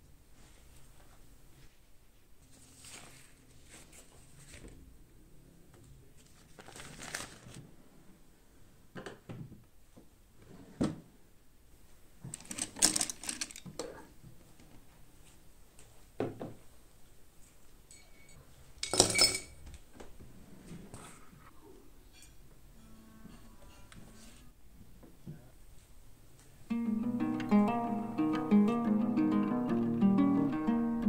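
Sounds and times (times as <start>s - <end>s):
objects rustling and knocking: 12.2s - 14.9s
objects clattering on desk: 12.3s - 14.1s, 18.8s - 19.6s.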